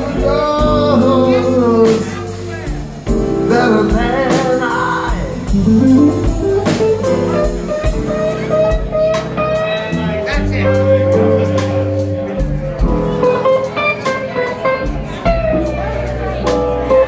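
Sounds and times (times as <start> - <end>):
electric guitar: 0.0 - 17.0
keyboard: 0.0 - 17.0
drum hits: 2.7 - 9.6.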